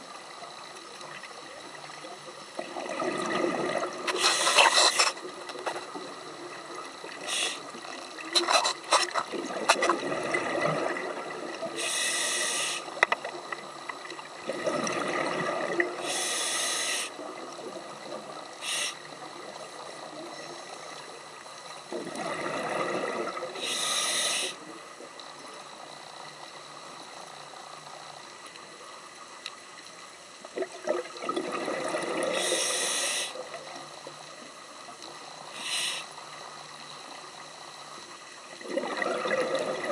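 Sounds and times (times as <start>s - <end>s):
diver exhaling bubbles: 2.7s - 5.0s, 30.6s - 32.7s, 38.6s - 39.9s
regulator inhale hiss: 4.0s - 5.3s, 7.1s - 9.0s, 11.7s - 13.1s, 16.0s - 17.3s, 18.5s - 19.2s, 23.4s - 24.8s, 32.2s - 33.6s, 35.4s - 36.7s.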